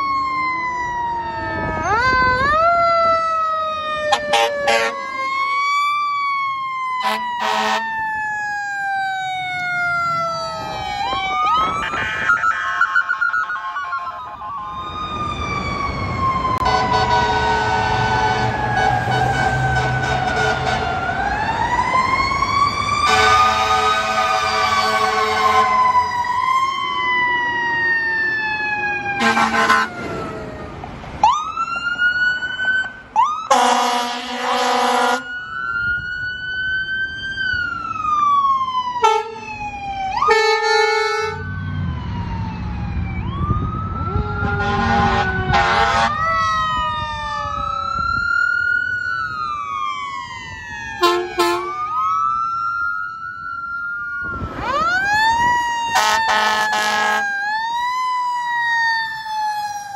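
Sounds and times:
sirens wailing and yelping: 0.0s - 59.9s
air horn blasts: 4.2s - 5.0s, 7.0s - 7.9s, 16.6s - 21.0s, 23.0s - 25.8s, 29.2s - 29.9s, 33.5s - 35.2s, 39.0s - 39.4s, 40.3s - 41.4s, 44.5s - 46.2s, 51.0s - 51.8s, 56.0s - 57.3s.

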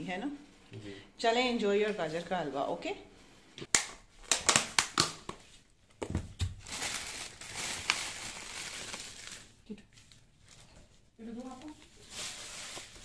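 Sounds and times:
plastic lids cracking and snapping: 3.7s - 5.4s
plastic crinkling: 6.0s - 13.0s.

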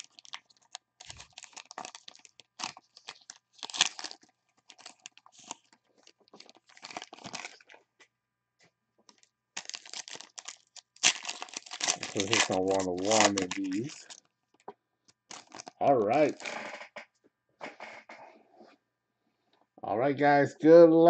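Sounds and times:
card pack wrapper crinkling and tearing: 0.0s - 7.8s, 9.1s - 14.3s, 15.1s - 16.5s.

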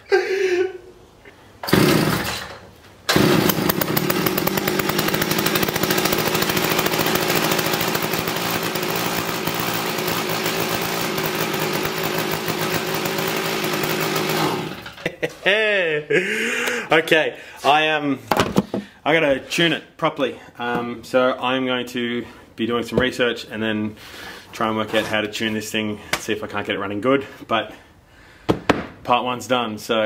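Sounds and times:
chainsaw engine running: 1.6s - 2.5s, 3.1s - 15.0s.

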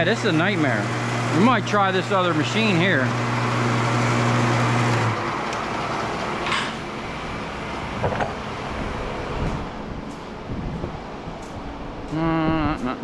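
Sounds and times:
wire-stripping machine humming: 0.0s - 13.0s
steady background noise: 5.2s - 13.0s.

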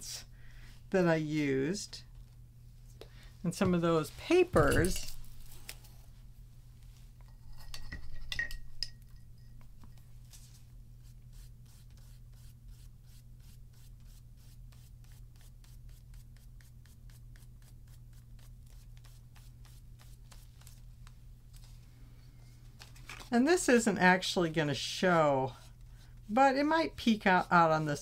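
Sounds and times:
paintbrush strokes on paper: 10.4s - 20.8s, 23.5s - 28.0s.

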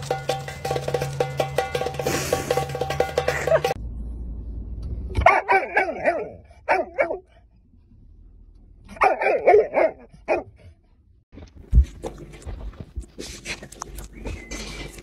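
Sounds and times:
dog barking: 5.2s - 7.4s, 8.9s - 10.6s.

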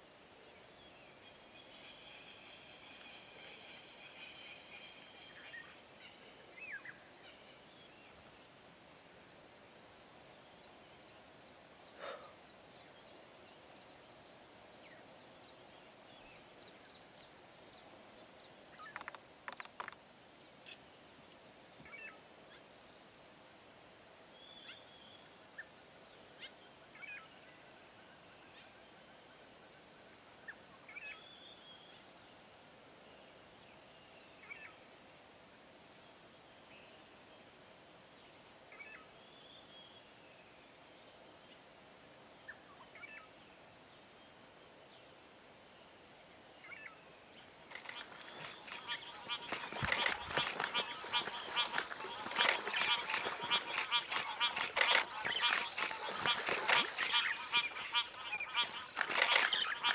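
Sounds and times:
short bird calls: 47.7s - 59.9s.

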